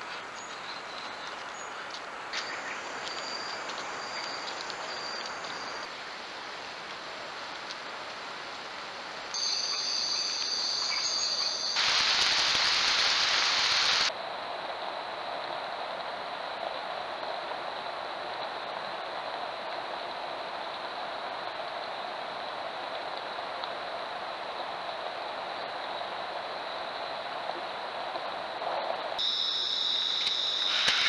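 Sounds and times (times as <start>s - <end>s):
background hiss: 0.0s - 31.0s
high-pitched insect calls: 9.4s - 14.1s, 29.2s - 31.0s.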